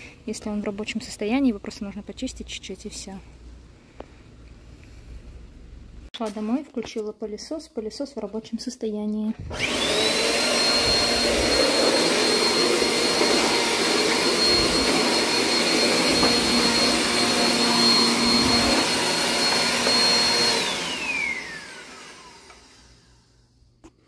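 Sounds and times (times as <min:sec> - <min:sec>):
vacuum cleaner whine: 0:09.4 - 0:23.5.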